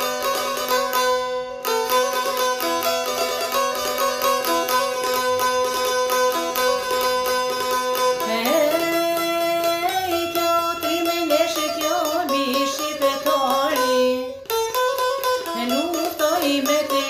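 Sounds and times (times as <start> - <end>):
plucked long-necked lute: 0.0 - 17.0
woman singing folk song: 8.2 - 17.0.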